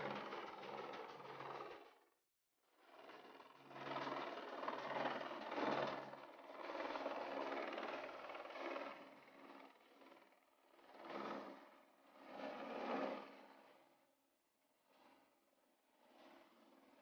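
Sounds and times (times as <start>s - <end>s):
helicopter rotor chop: 0.0s - 2.1s, 2.8s - 14.0s.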